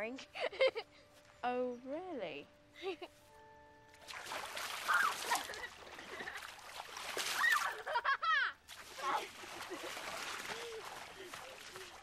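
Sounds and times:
water splashing in river: 0:04.0 - 0:07.9, 0:08.7 - 0:12.0
girls laughing and squealing: 0:04.8 - 0:06.4, 0:07.3 - 0:10.0.

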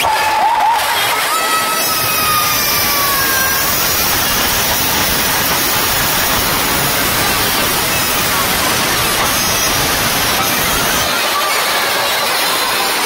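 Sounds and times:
rushing hiss: 0:01.8 - 0:11.4.

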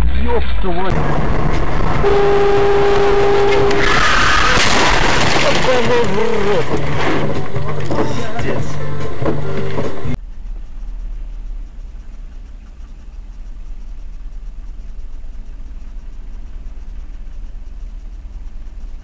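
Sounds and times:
car engine idling: 0:00.9 - 0:19.0.

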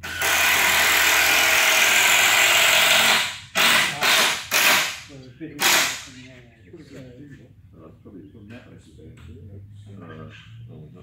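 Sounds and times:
power drill running: 0:00.0 - 0:05.0.

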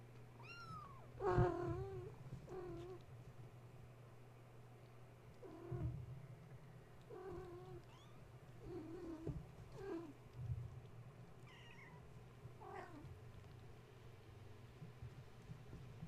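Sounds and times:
cats meowing and chirping: 0:00.4 - 0:03.0, 0:07.0 - 0:10.2, 0:11.4 - 0:13.1.

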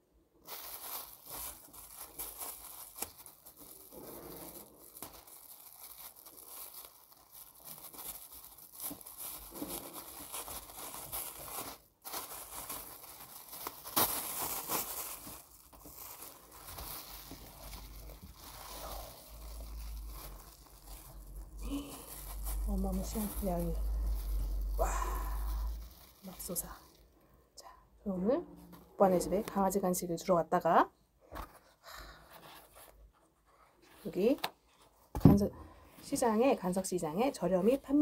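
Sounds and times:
plastic bag crinkling: 0:00.4 - 0:27.2.

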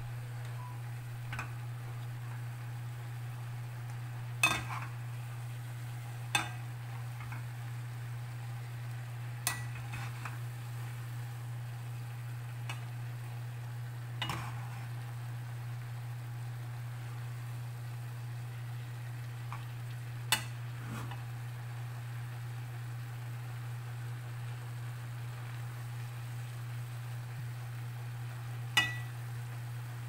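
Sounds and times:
low hum: 0:00.0 - 0:29.7
tongs clacking against pot: 0:06.3 - 0:07.4, 0:09.4 - 0:10.4, 0:28.8 - 0:29.1.

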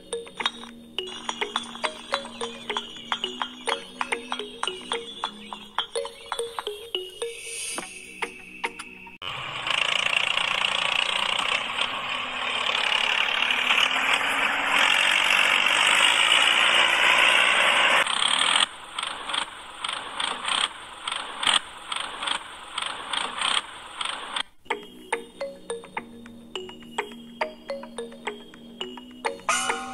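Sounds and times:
electric gear motor whirring: 0:09.2 - 0:20.6.

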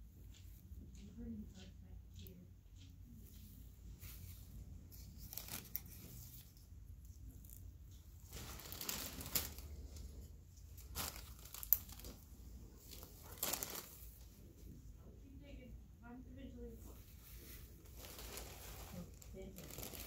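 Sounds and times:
paper crinkling and rustling: 0:03.3 - 0:14.4, 0:17.0 - 0:20.0.

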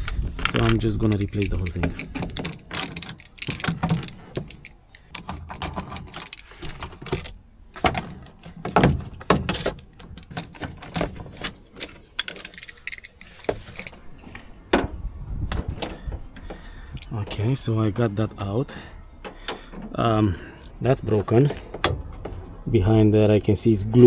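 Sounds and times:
metallic clicks and rattles of tools: 0:00.0 - 0:14.1.

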